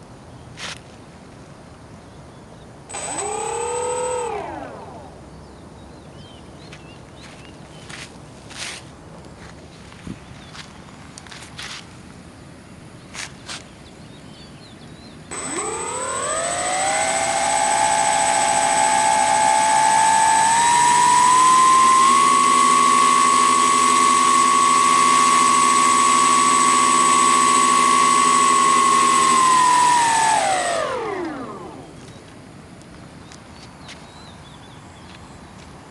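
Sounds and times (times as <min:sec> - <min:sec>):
electric motors whining: 0:02.9 - 0:05.2, 0:15.3 - 0:32.3.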